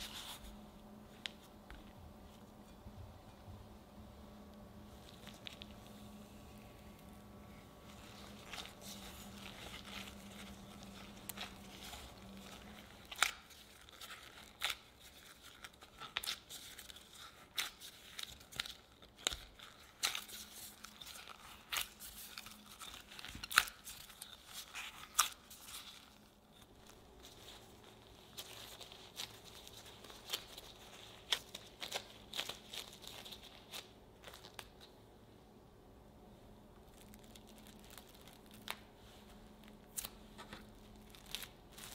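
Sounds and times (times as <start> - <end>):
plastic glove crinkling: 0.0 - 35.1, 36.6 - 41.9
sticky mixture squelching: 5.0 - 34.6.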